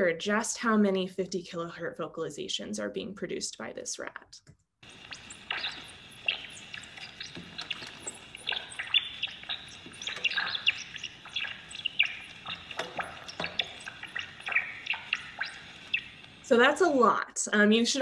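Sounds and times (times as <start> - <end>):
rat chirps: 4.8 - 16.6.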